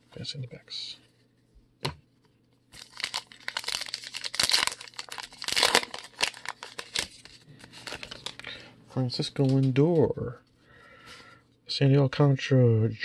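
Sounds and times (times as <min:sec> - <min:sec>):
plastic wrapper crinkling and tearing: 0:02.7 - 0:08.6.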